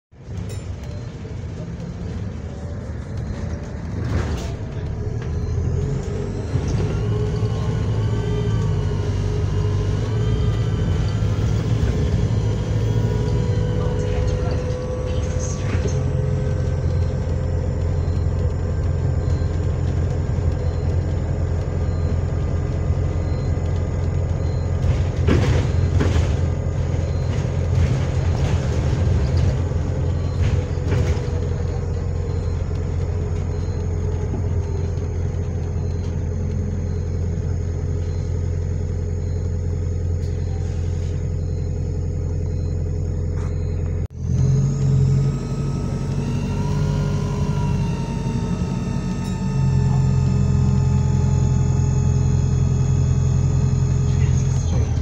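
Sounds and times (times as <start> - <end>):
bus engine humming: 0.0 - 55.0
rising and falling tone: 44.1 - 55.0.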